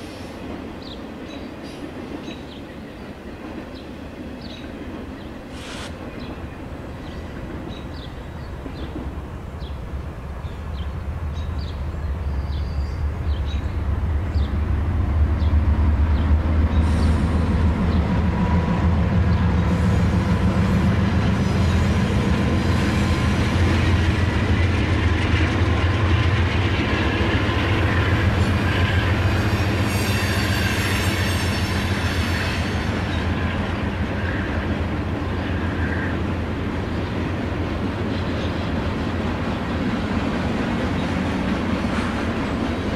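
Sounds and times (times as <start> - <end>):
metallic wheel squeal: 29.4 - 32.7.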